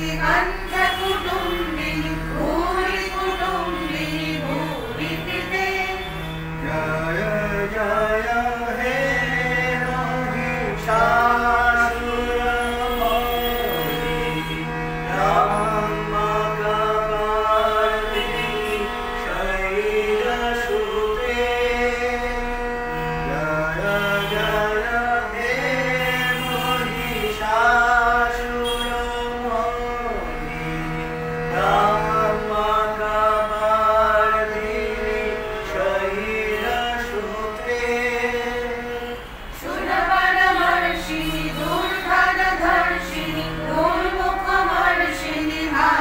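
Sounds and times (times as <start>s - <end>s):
group singing: 0.0s - 13.7s, 31.5s - 34.5s, 39.5s - 46.0s
harmonium sustained notes: 0.0s - 46.0s.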